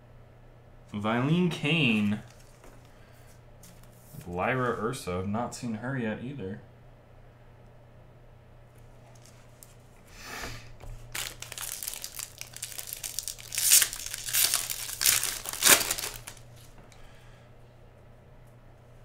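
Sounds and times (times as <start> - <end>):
foil pack crinkling: 11.0 - 16.8.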